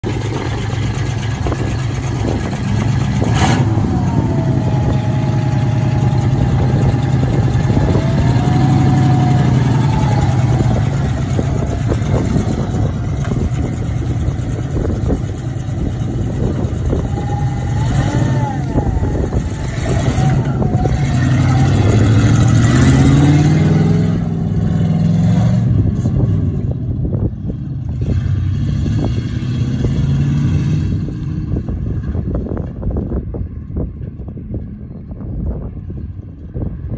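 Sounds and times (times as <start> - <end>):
pickup truck engine revving: 0.0 - 26.7.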